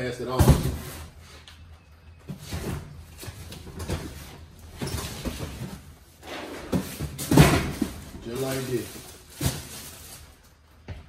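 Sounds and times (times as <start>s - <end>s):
cardboard boxes knocking and thudding: 0.3s - 1.1s, 2.2s - 6.0s, 6.6s - 8.6s.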